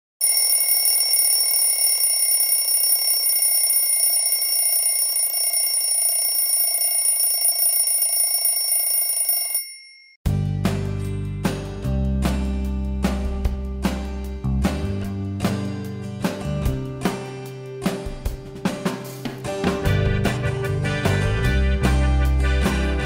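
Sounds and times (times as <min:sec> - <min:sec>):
alarm bell ringing: 0:00.2 - 0:10.2.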